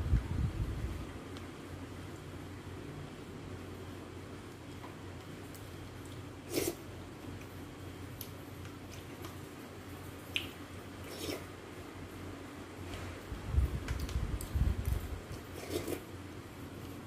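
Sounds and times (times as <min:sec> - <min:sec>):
squishy slurp: 0:06.1 - 0:06.9, 0:10.4 - 0:11.5, 0:15.3 - 0:16.1.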